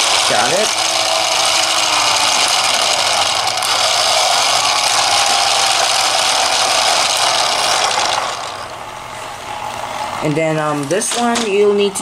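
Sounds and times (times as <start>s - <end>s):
toy motor whirring: 0.0s - 8.8s.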